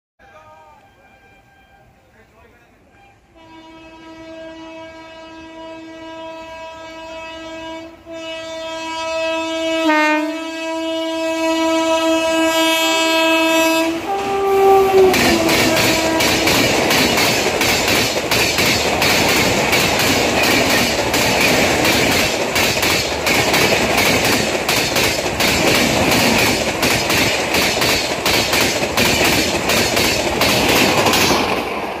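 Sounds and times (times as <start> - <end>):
locomotive horn: 0.2 - 2.1, 2.8 - 17.2
train wheels clattering over rail joints: 14.1 - 32.0.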